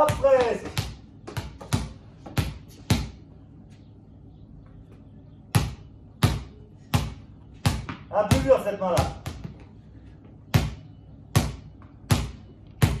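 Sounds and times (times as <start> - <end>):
basketball bouncing on tile floor: 0.0 - 3.2, 5.5 - 9.7, 10.5 - 13.0.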